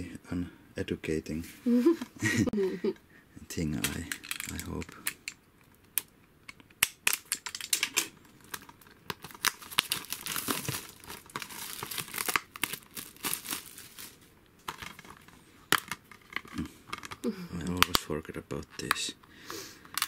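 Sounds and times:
plastic wrap tearing and crinkling: 6.8 - 18.0.

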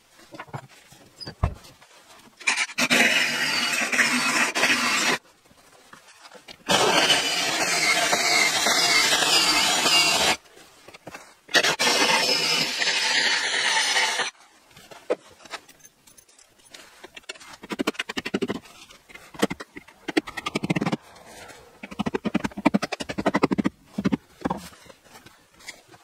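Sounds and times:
power drill drilling into wood: 2.5 - 5.2, 6.7 - 10.4, 11.5 - 14.3.

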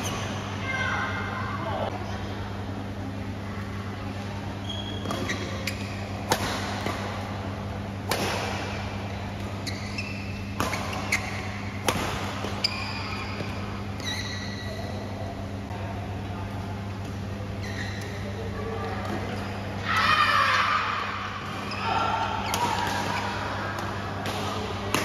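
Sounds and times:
shoes squeaking on court floor: 0.0 - 0.6, 4.6 - 7.0, 8.8 - 15.1, 17.2 - 19.8, 21.4 - 23.4
steady low hum: 0.0 - 25.0
rackets hitting shuttlecock: 5.0 - 9.6, 10.5 - 13.5, 22.4 - 25.0.

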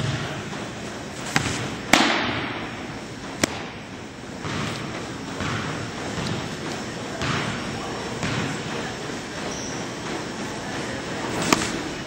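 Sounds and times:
ball smacking into leather mitt: 1.3 - 2.6
ball snapping into glove: 3.4 - 3.7, 11.4 - 11.8.

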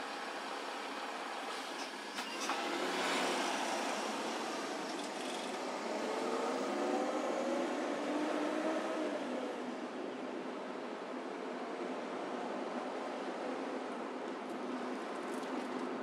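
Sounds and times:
road and engine noise: 0.0 - 16.0
vehicle engine speeding up: 5.6 - 9.2.

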